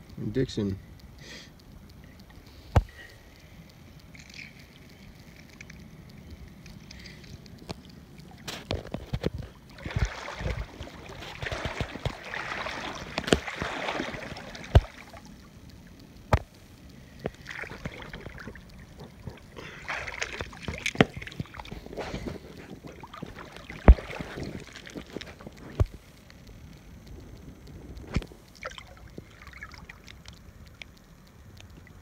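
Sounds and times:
water splashing around feet: 8.3 - 15.4, 17.3 - 26.0.

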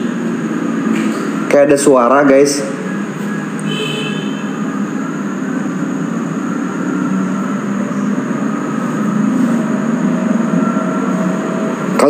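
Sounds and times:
low rumbling drone with hiss: 0.0 - 12.0.

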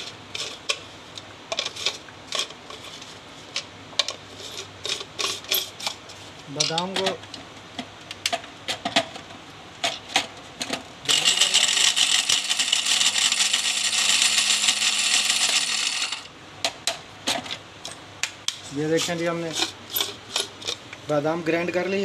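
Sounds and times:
mixer grinder motor: 11.1 - 16.3.

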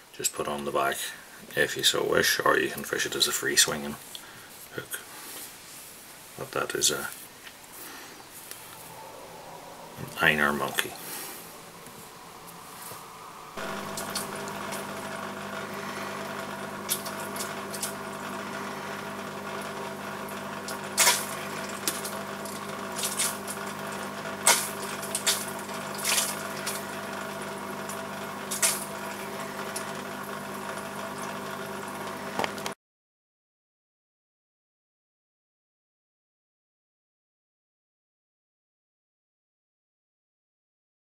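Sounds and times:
water pump humming: 8.3 - 32.8
water splashing: 24.4 - 27.0.

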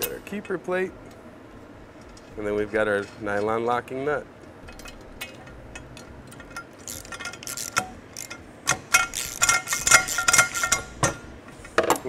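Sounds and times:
socket ratchet clicking: 4.7 - 11.4.

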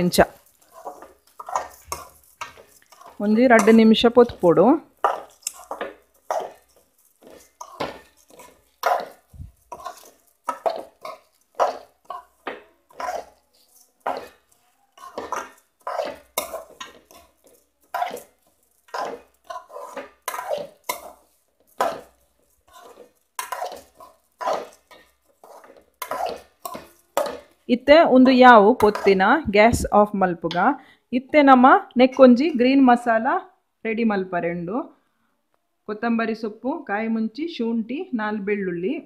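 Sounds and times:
rice grains rustling: 0.0 - 27.5
spatula scraping a metal pot: 0.0 - 29.3.

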